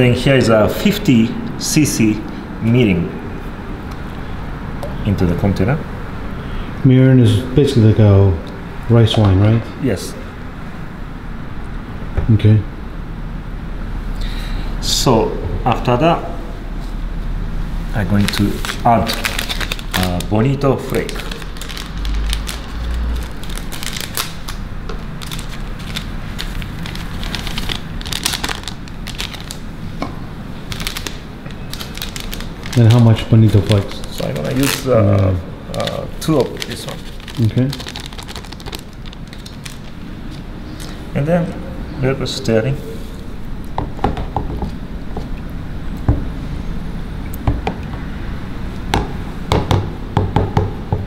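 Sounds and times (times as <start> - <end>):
steady low hum: 0.0 - 51.0
plastic packet crinkling: 18.0 - 29.7, 30.6 - 41.1.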